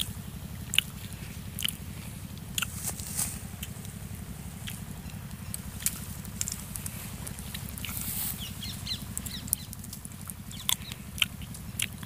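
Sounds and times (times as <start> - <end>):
rustling: 0.9 - 10.4
bird chirps: 6.8 - 11.9.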